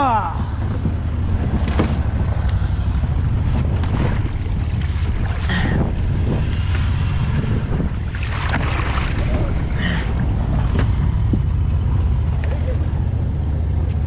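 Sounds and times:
wind on microphone: 0.3s - 11.9s
water splashes: 2.0s - 11.4s.

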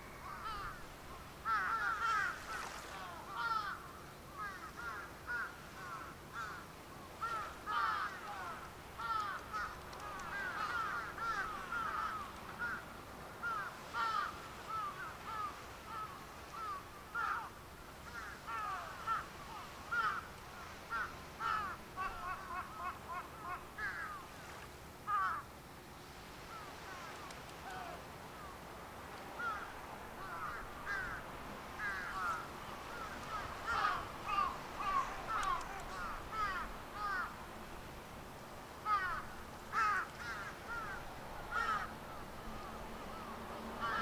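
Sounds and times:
flock of birds calling: 1.5s - 3.8s, 7.2s - 12.8s, 13.4s - 24.2s, 29.4s - 31.2s, 31.8s - 37.4s, 38.9s - 44.0s.

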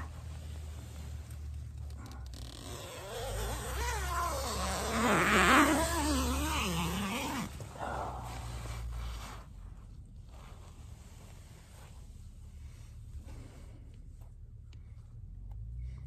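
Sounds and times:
fabric rustle: 0.0s - 14.5s
tent zipper pulled open: 0.7s - 7.6s.

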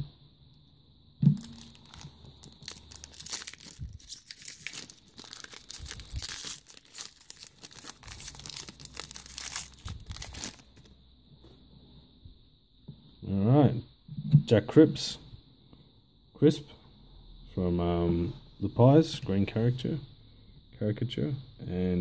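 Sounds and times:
foil pack tearing and crinkling: 1.4s - 10.9s.

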